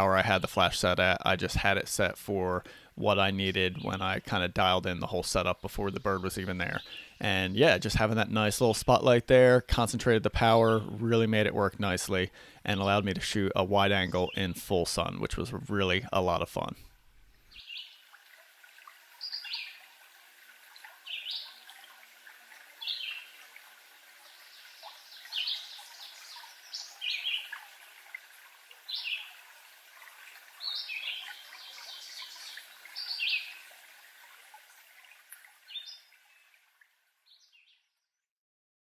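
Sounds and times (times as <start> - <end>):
songbirds singing: 5.3 - 8.0, 17.4 - 18.1, 19.2 - 20.0, 20.7 - 22.0, 22.7 - 23.4, 24.2 - 27.8, 28.8 - 29.4, 30.5 - 33.7, 35.6 - 36.6, 37.2 - 37.8.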